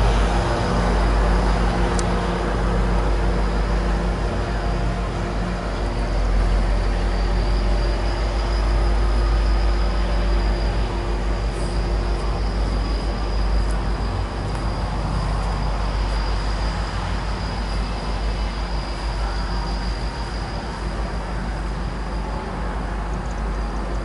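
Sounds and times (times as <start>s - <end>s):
diesel locomotive rumbling: 0.0s - 24.0s.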